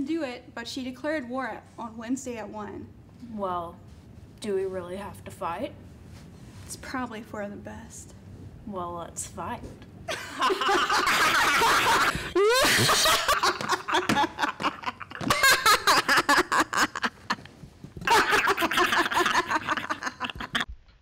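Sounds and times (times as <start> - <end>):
girls laughing: 10.1 - 20.7.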